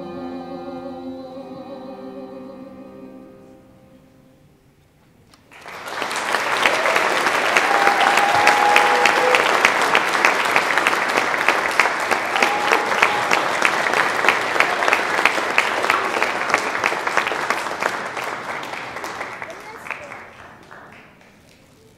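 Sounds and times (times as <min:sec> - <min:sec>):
audience applause: 0:05.4 - 0:21.8.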